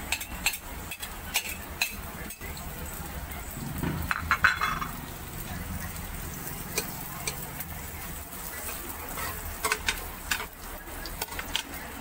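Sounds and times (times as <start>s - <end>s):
garlic sizzling in hot oil: 0.0s - 12.0s
metal spatula scraping pan: 3.8s - 11.8s.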